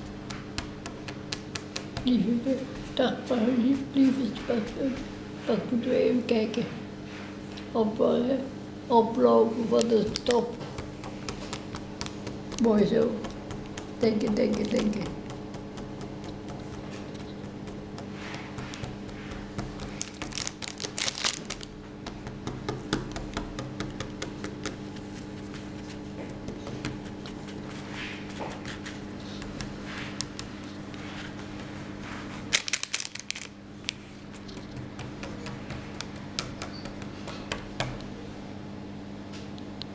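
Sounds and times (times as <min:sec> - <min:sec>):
steady low hum: 0:00.0 - 0:39.9
plastic wrapper crinkling: 0:19.9 - 0:21.8, 0:32.5 - 0:33.6.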